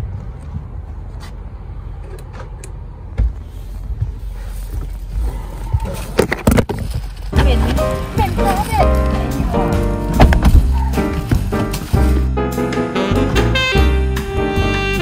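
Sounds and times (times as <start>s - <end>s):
knocks and bumps: 3.1s - 12.3s
steady low rumble: 6.9s - 12.4s.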